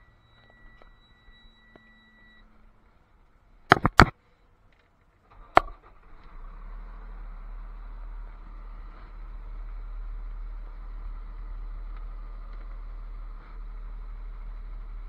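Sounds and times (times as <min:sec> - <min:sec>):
steady high beep: 0:00.0 - 0:02.5
loud sharp knocks: 0:03.7 - 0:04.1
diesel truck engine rumbling: 0:05.2 - 0:15.0.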